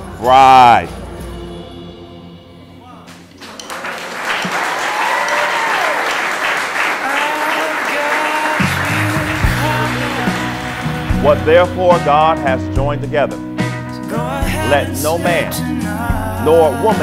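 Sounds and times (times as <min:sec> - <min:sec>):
crowd applauding and cheering: 0:03.2 - 0:12.0
whoops: 0:04.6 - 0:06.3.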